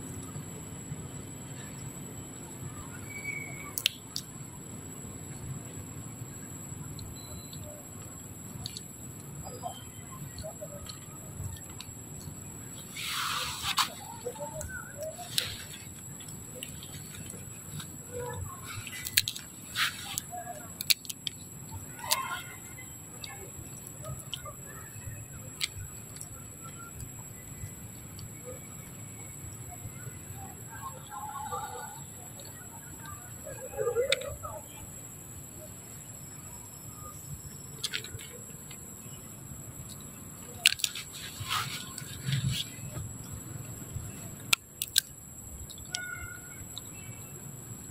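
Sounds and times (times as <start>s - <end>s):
peanut shells cracking: 40.6s - 41.1s, 44.5s - 45.1s.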